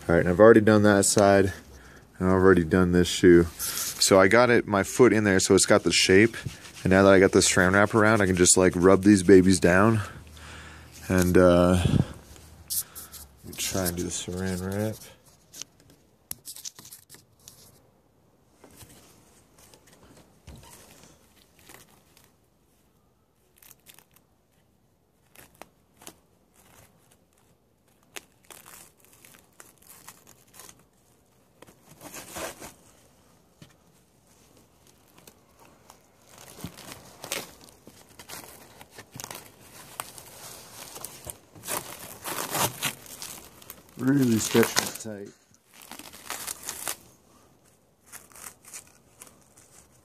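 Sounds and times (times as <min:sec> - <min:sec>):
plastic cling wrap crinkling and tearing: 0:03.1 - 0:15.7, 0:20.6 - 0:22.5, 0:23.1 - 0:33.1, 0:34.3 - 0:50.0.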